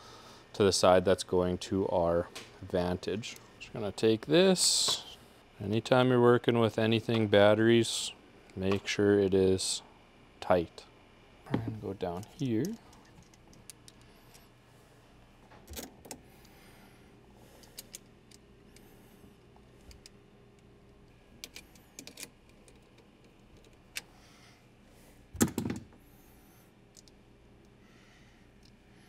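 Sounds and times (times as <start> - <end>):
hands handling cables clicking: 17.6 - 18.9, 21.4 - 24.1.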